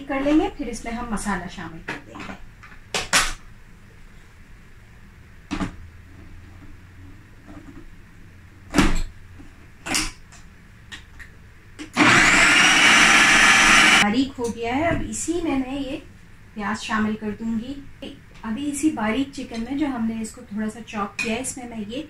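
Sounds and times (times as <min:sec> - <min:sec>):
food processor motor: 0:11.8 - 0:14.0.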